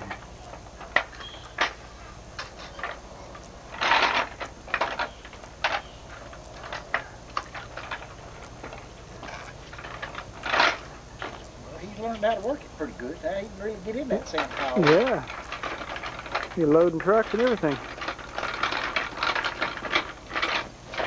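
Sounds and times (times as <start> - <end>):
rattling scrapes of gravel: 0.0 - 21.0
toy excavator bucket digging gravel: 14.4 - 21.0.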